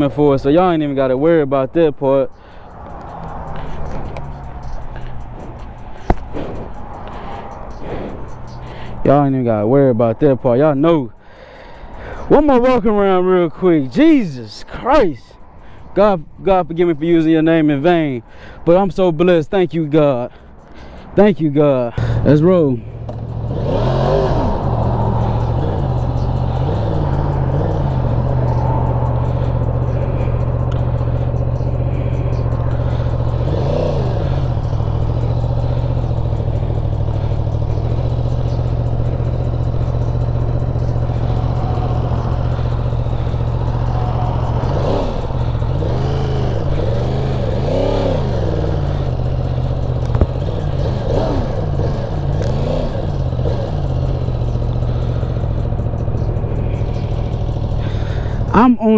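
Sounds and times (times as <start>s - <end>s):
motorcycle engine revving: 2.6s - 9.2s, 22.0s - 58.9s
sharp knock: 6.0s - 6.5s.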